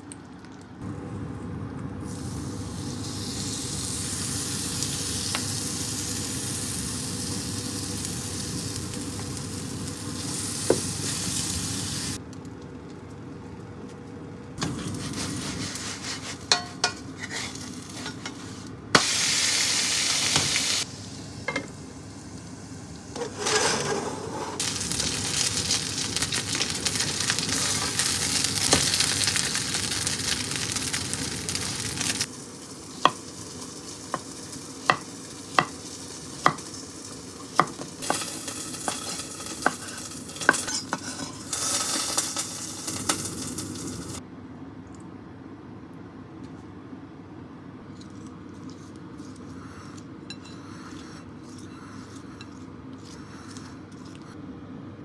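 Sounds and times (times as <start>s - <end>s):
food sizzling in a pan: 2.0s - 12.2s, 14.7s - 24.0s, 24.6s - 44.2s.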